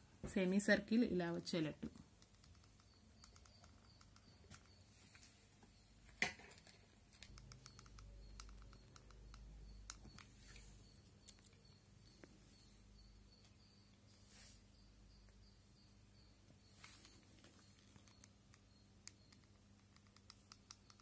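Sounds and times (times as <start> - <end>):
faint clicks and taps: 1.8 - 12.4, 16.8 - 21.0.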